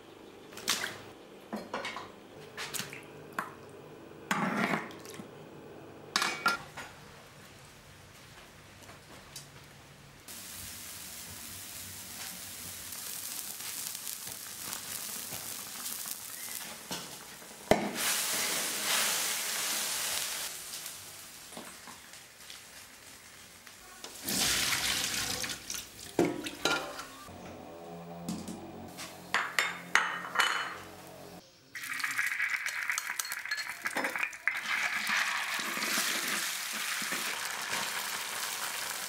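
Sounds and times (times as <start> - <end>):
water sizzling in a hot wok: 10.3 - 26.2, 31.8 - 39.0.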